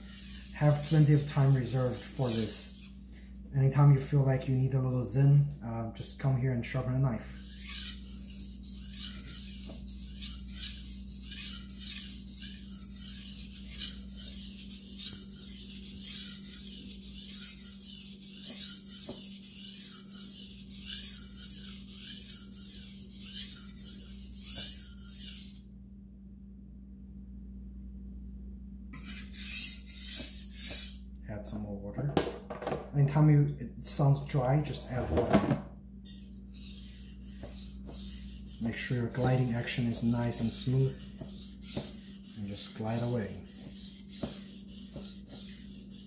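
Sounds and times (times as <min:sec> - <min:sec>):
knife scraping on whetstone: 0:00.0 - 0:03.0, 0:07.3 - 0:25.6, 0:29.0 - 0:31.0, 0:36.0 - 0:46.0.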